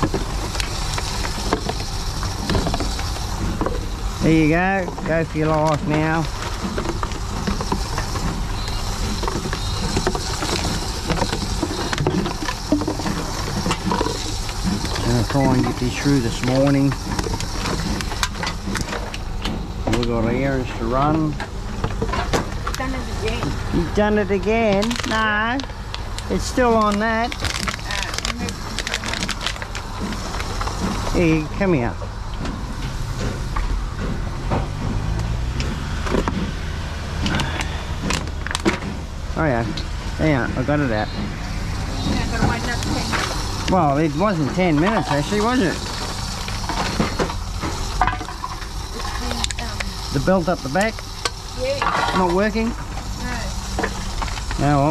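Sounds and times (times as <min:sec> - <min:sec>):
vending machine humming: 0:00.0 - 0:54.9
plastic bottles clicking and knocking: 0:24.5 - 0:31.1.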